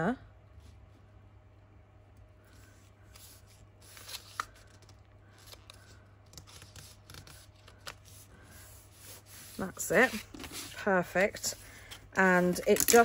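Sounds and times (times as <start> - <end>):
paper rustling and crinkling: 3.0 - 13.0
paper crackles: 3.1 - 13.0.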